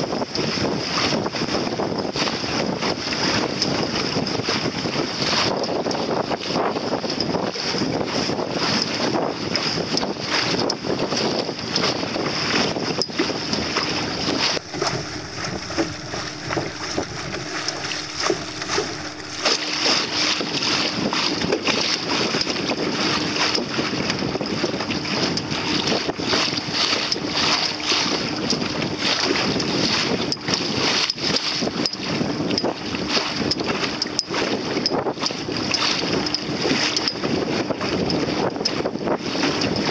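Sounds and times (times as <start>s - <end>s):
water splashing around boat: 0.0s - 39.9s
wind buffeting microphone: 0.0s - 39.9s
faint steady hum: 14.6s - 20.6s.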